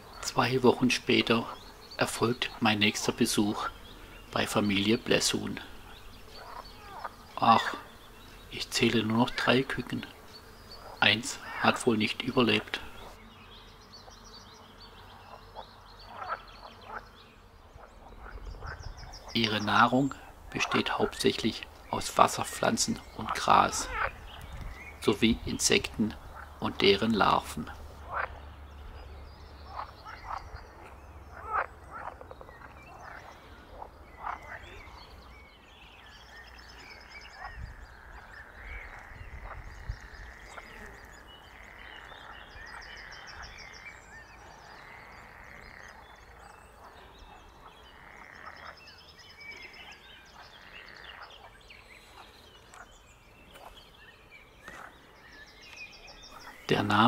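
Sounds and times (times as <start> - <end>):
frogs croaking: 0.0 - 57.0
high frog trills: 4.3 - 13.2, 15.1 - 17.1, 17.8 - 28.4, 29.6 - 35.2, 36.2 - 47.0, 47.6 - 51.5.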